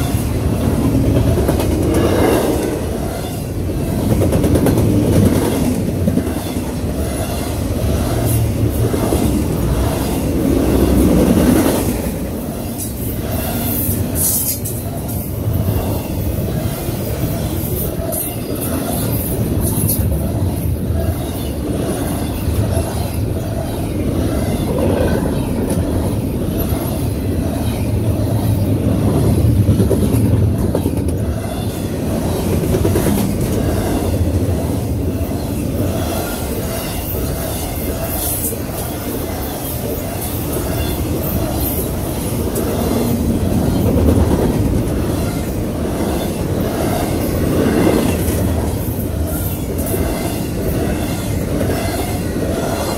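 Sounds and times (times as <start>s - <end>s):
train wheels rumbling on rails: 0.0s - 52.9s.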